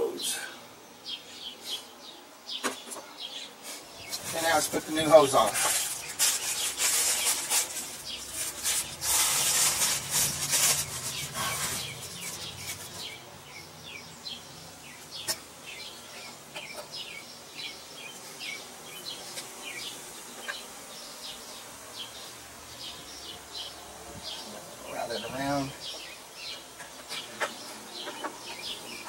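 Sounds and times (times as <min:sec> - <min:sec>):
small bird chirping: 0:01.0 - 0:29.0
rustling handling noise: 0:03.6 - 0:13.2.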